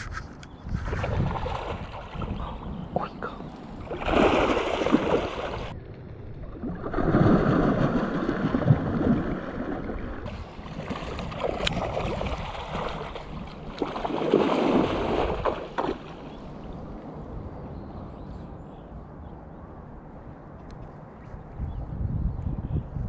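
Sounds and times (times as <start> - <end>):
carp splashing in shallow water: 0.8 - 2.6, 3.6 - 5.8, 6.6 - 16.7.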